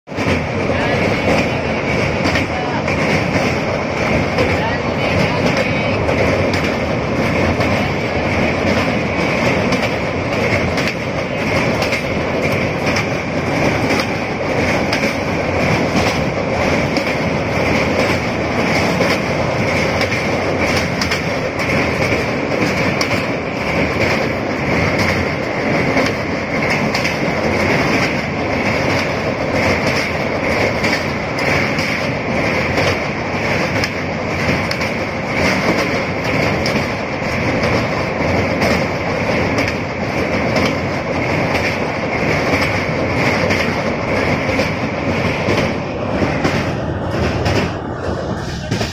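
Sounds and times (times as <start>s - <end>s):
clickety-clack of train: 0.0s - 48.9s
train wheels rumbling on rails: 0.0s - 48.9s.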